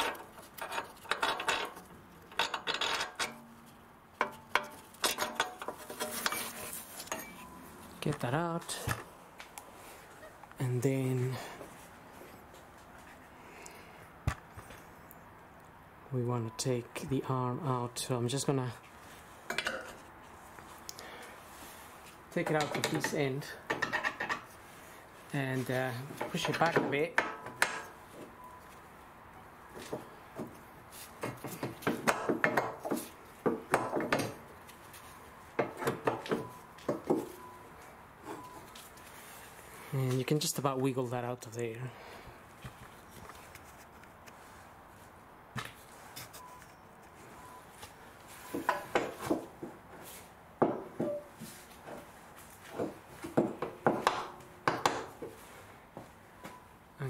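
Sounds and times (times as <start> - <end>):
metallic knocks and scrapes: 0.0 - 7.6, 22.4 - 24.6.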